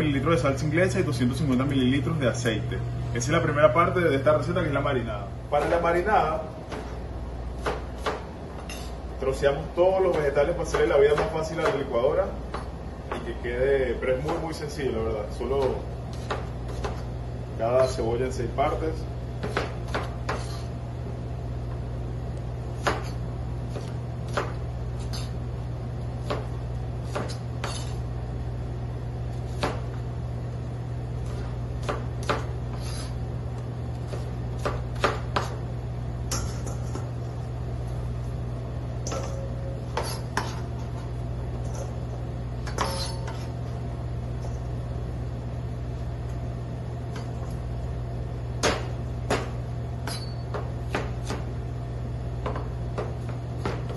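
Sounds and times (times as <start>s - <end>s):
steady low hum: 0.0s - 53.9s.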